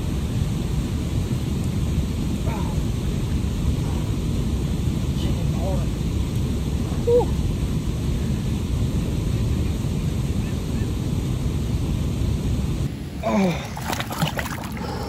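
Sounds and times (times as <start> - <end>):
flowing water: 12.9 - 15.0
water splashing: 13.2 - 15.0.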